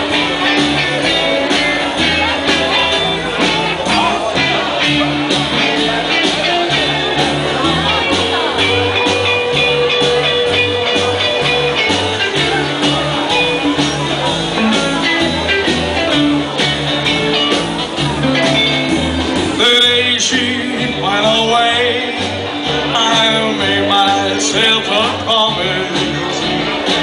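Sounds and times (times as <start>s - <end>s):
acoustic and electric guitars: 0.0s - 27.0s
drums: 0.0s - 27.0s
upright bass: 0.0s - 27.0s
man singing: 19.5s - 27.0s.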